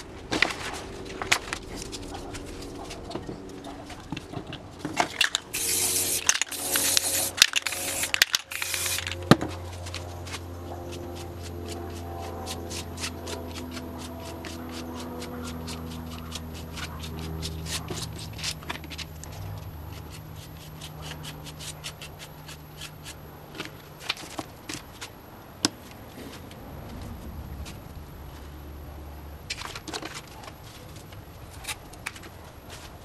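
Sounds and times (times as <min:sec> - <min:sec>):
hands rubbing poster paper: 0:05.6 - 0:23.2.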